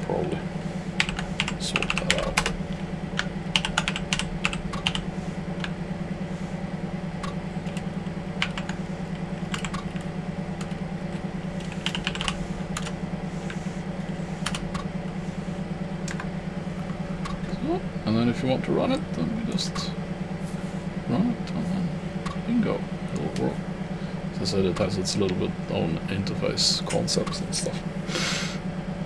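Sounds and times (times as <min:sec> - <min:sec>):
steady low hum: 0:00.0 - 0:29.0
keyboard typing clicks: 0:03.2 - 0:05.0, 0:09.4 - 0:10.8.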